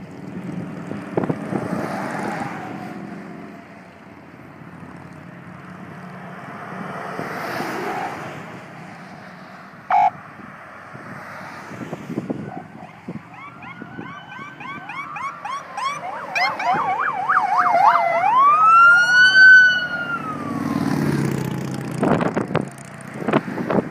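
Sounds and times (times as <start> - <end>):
passing vehicle engines rumbling: 0.0 - 23.9
police siren wail: 9.9 - 10.2, 12.4 - 21.8
police siren yelp: 9.9 - 10.2, 12.4 - 21.0.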